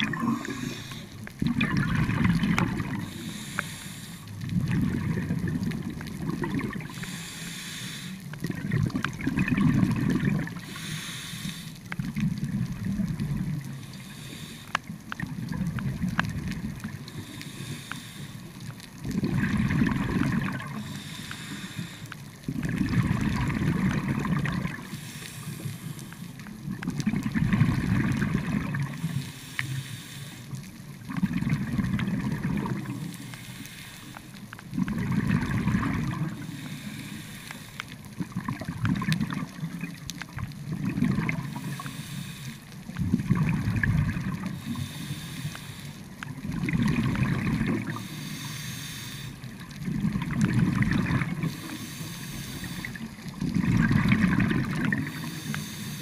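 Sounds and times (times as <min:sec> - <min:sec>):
exhaled bubbles underwater: 0:00.0 - 0:29.7, 0:30.5 - 0:33.5, 0:34.3 - 0:56.0
regulator inhale hiss: 0:00.1 - 0:01.3, 0:02.9 - 0:04.4, 0:06.8 - 0:08.4, 0:10.6 - 0:12.0, 0:13.6 - 0:15.0, 0:17.0 - 0:18.8, 0:20.6 - 0:22.3, 0:24.7 - 0:26.5, 0:28.9 - 0:30.8, 0:33.0 - 0:34.5, 0:36.2 - 0:38.0, 0:41.4 - 0:43.0, 0:44.4 - 0:46.3, 0:47.9 - 0:49.8, 0:51.4 - 0:53.3, 0:54.9 - 0:56.0.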